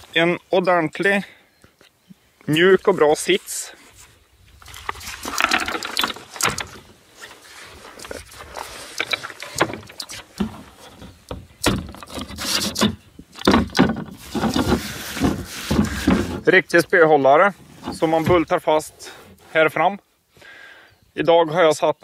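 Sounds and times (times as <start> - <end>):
plastic hatch lid knocks and scrapes: 10.4 - 16.4.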